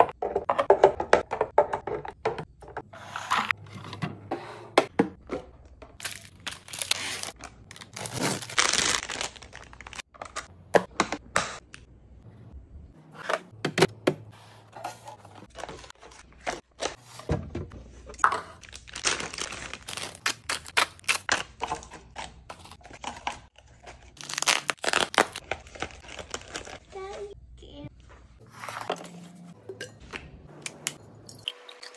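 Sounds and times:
plastic wrappers crinkling: 6.0s - 10.4s, 18.6s - 21.8s, 23.7s - 27.3s.

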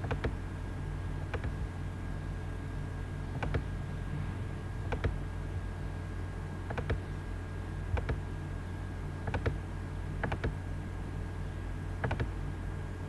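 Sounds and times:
steady low hum: 0.0s - 13.0s
computer mouse clicking: 1.3s - 1.6s, 4.9s - 5.2s, 6.7s - 7.0s, 8.0s - 8.2s, 9.2s - 9.6s, 10.2s - 10.6s, 12.0s - 12.3s.

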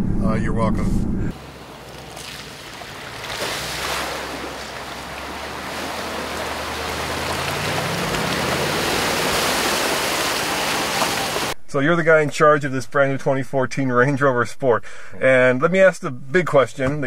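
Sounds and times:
water splashing against vehicle: 1.3s - 11.6s
car engine running: 4.0s - 11.5s.

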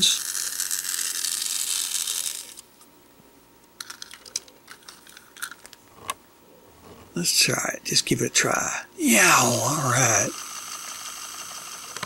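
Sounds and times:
toy train motor whirring: 0.0s - 2.6s, 9.4s - 12.0s.

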